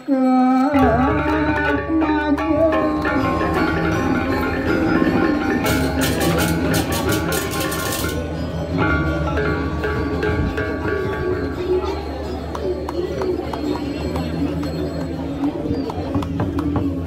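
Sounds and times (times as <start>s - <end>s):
metallophones interlocking pattern: 2.4s - 12.5s.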